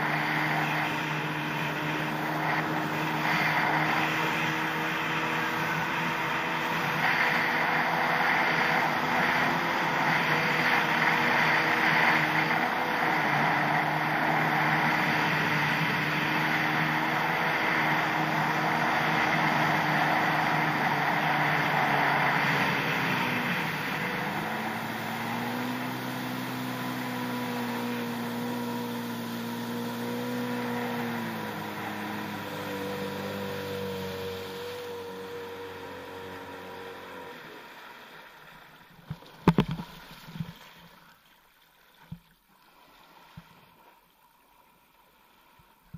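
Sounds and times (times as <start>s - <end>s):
jet ski engine running: 0.0s - 38.4s, 39.1s - 39.8s.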